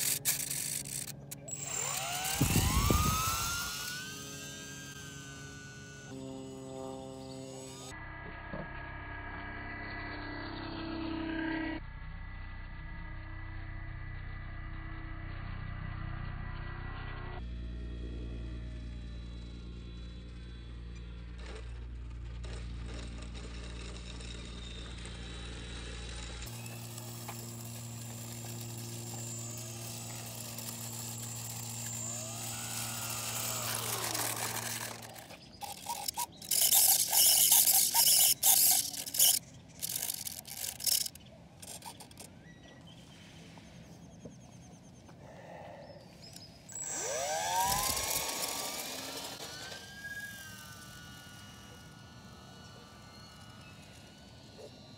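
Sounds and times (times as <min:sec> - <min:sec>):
motor throttling bursts: 0:00.0 - 0:07.9, 0:19.0 - 0:42.3, 0:46.3 - 0:54.9
electric model plane motor humming: 0:00.0 - 0:42.9, 0:45.1 - 0:54.9
plane motor whine: 0:00.0 - 0:54.9.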